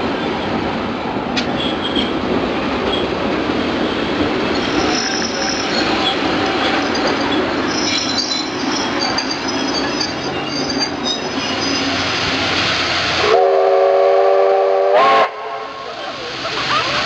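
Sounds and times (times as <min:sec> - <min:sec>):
train wheels rolling: 0:00.0 - 0:13.8
faint high wheel squeal: 0:04.4 - 0:12.2
train horn: 0:13.2 - 0:15.9.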